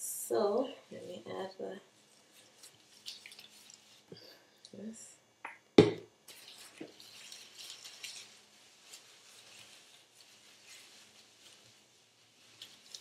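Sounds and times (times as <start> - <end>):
wet squishing of hair: 2.0 - 4.8, 6.3 - 13.0.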